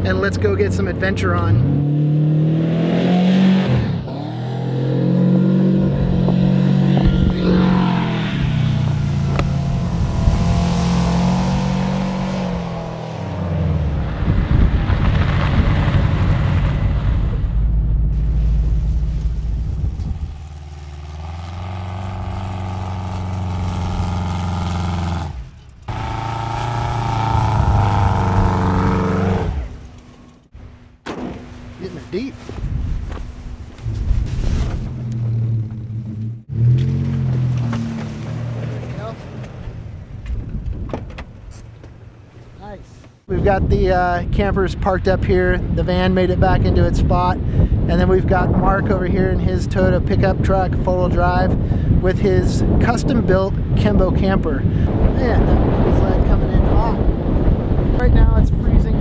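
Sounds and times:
van engine revving: 0:01.4 - 0:30.5.

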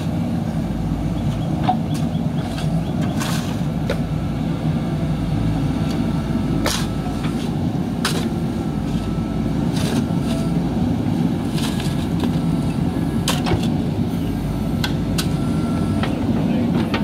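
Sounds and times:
diesel engine running under load: 0:00.0 - 0:17.0.

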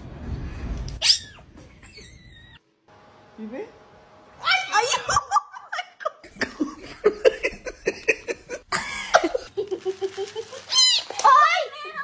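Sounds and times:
person laughing: 0:04.8 - 0:10.7.

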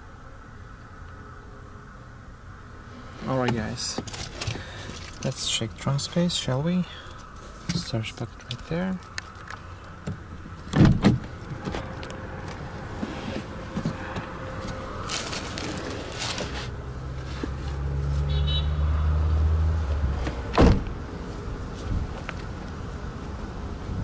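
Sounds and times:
car door shutting: 0:10.0 - 0:11.9, 0:20.2 - 0:21.0
plastic seat cover rustling: 0:14.6 - 0:17.8.

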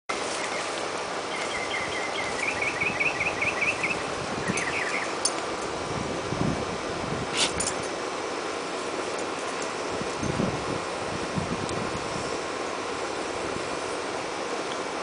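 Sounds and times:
outdoor background hiss: 0:00.1 - 0:15.0
small bird chirping: 0:01.3 - 0:05.2.

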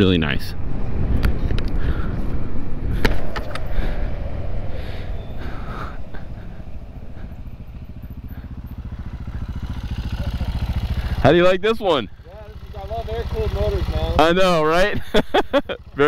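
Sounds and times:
low rumble: 0:00.5 - 0:11.3
motorcycle engine idling: 0:03.3 - 0:16.0.

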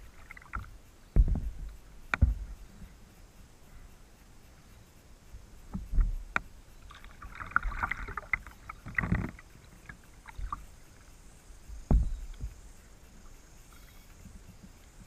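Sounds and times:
water splashing and dripping: 0:00.0 - 0:02.6, 0:05.7 - 0:14.4
kayak paddle thumps: 0:00.4 - 0:02.6, 0:05.7 - 0:06.5, 0:11.7 - 0:12.7.

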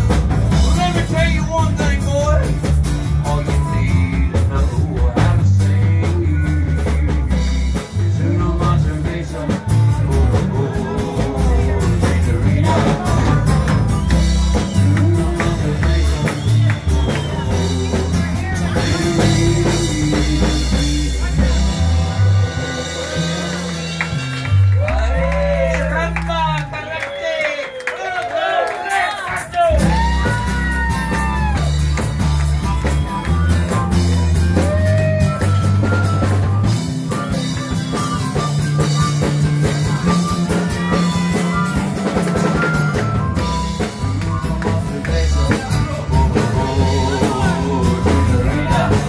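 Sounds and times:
acoustic guitar: 0:00.0 - 0:25.0, 0:29.7 - 0:49.0
strong bass line: 0:00.0 - 0:26.7, 0:29.6 - 0:49.0
man and woman singing: 0:03.2 - 0:24.0, 0:44.4 - 0:49.0
harmonica: 0:32.2 - 0:49.0.

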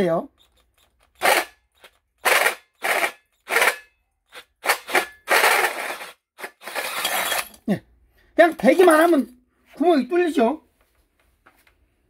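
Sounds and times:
hole saw grinding into steel: 0:00.4 - 0:07.7.

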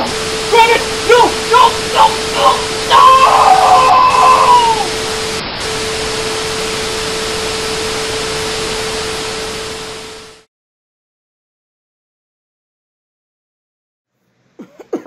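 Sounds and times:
static hiss: 0:00.0 - 0:10.5.

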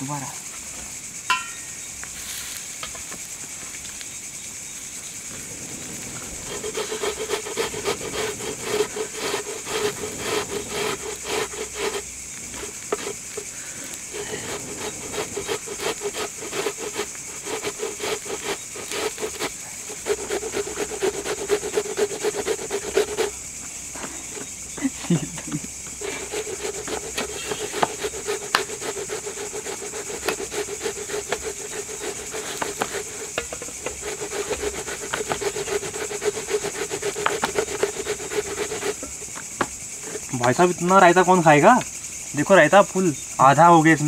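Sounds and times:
crickets chirping: 0:00.0 - 0:44.0
cucumber rasping on a grater: 0:06.5 - 0:12.0, 0:12.6 - 0:13.5, 0:14.1 - 0:23.4, 0:26.0 - 0:39.1.

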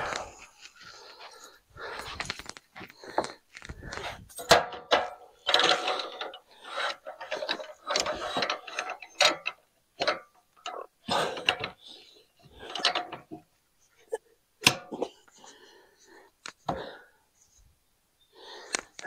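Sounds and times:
wooden boards and metal clanking: 0:04.3 - 0:11.8.

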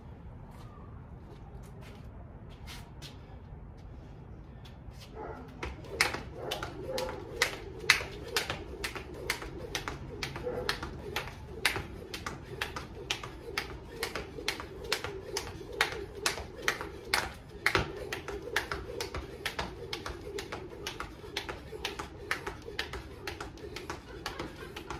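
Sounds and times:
jump rope slapping concrete: 0:05.4 - 0:24.9.

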